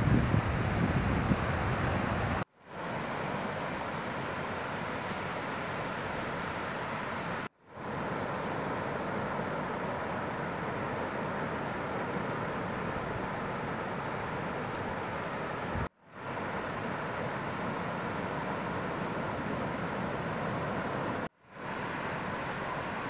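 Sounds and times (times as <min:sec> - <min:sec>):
wind buffeting microphone: 0:00.0 - 0:02.4
ocean surf breaking: 0:00.0 - 0:23.0.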